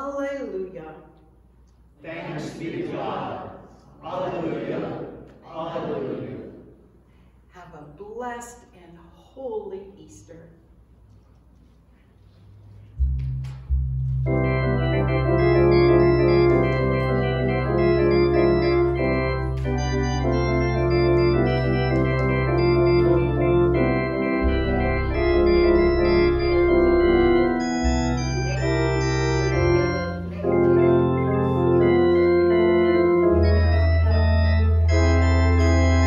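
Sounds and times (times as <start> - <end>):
organ playing chords: 2.0 - 6.7, 12.7 - 36.0.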